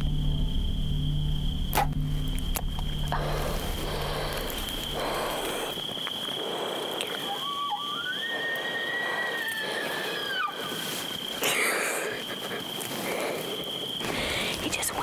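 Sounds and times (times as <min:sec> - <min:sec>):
elk bugling whistle: 0:06.4 - 0:10.8.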